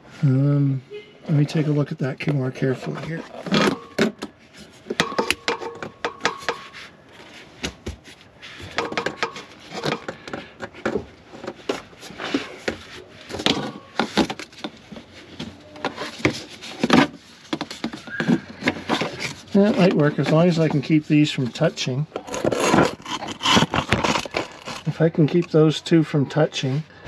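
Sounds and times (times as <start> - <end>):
plastic hoses clicking and rubbing: 8.0 - 25.8.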